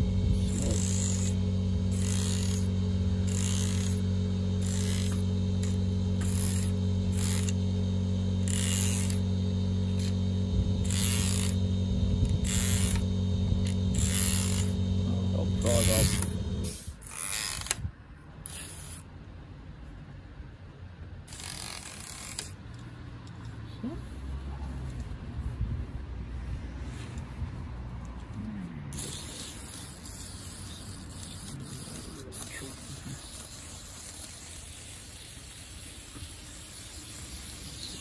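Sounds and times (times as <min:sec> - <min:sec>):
stiff brush scrubbing circuit board: 0:00.0 - 0:17.6, 0:29.0 - 0:38.0
electric machine hum: 0:00.0 - 0:17.8.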